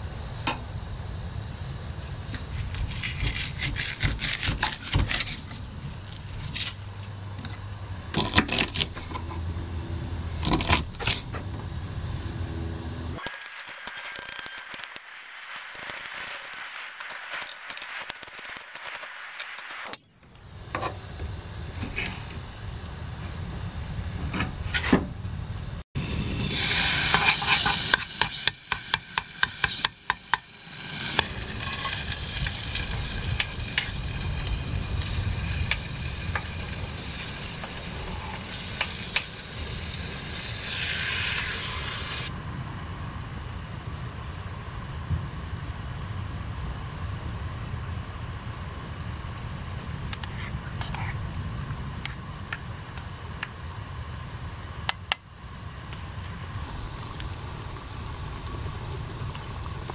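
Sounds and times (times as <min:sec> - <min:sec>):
high insect buzz: 0:00.0 - 0:59.9
paste sizzling in pot: 0:13.1 - 0:20.0, 0:26.0 - 0:42.3.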